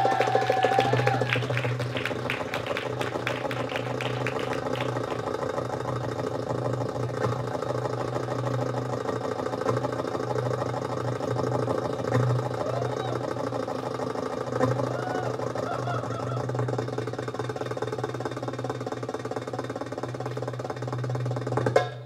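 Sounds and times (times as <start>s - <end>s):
hand drum rolling: 0.0s - 7.4s, 20.3s - 22.0s.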